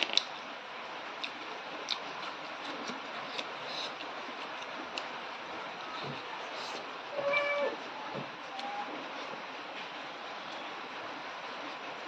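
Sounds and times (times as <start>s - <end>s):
person chewing food: 1.2s - 5.1s.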